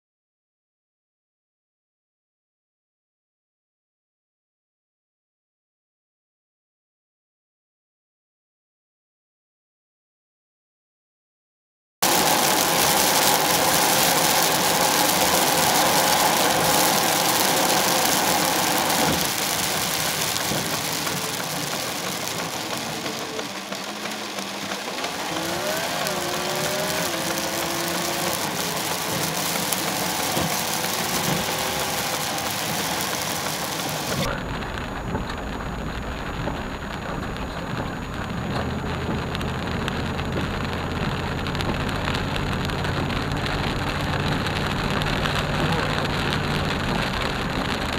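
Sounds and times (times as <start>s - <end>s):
car engine and road hum: 12.0s - 47.9s
rain on a car: 12.0s - 47.9s
tyres hissing on wet road: 12.0s - 47.9s.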